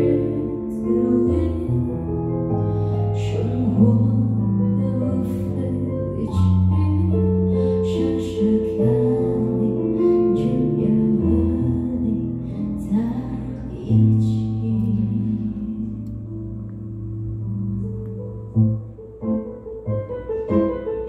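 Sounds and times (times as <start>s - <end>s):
woman singing: 0.0s - 2.3s, 3.0s - 16.4s.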